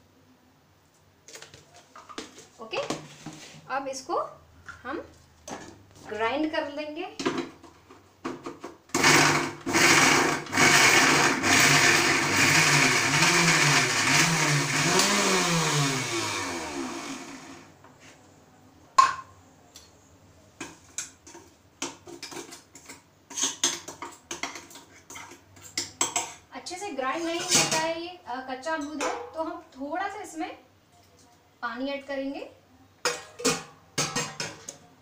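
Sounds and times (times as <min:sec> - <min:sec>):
mixer grinder motor: 0:09.0 - 0:17.7.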